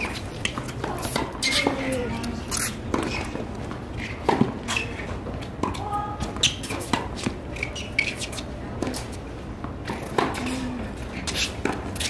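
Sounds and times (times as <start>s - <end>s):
tennis ball bounces: 0.0s - 3.4s, 4.0s - 4.8s, 5.5s - 10.4s
tennis racquet strikes: 4.0s - 4.6s.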